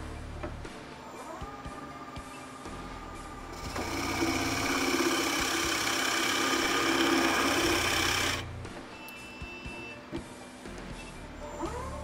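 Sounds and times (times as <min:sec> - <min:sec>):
drill press motor hum: 0:01.2 - 0:08.5
drill bit boring into wood: 0:03.6 - 0:08.4.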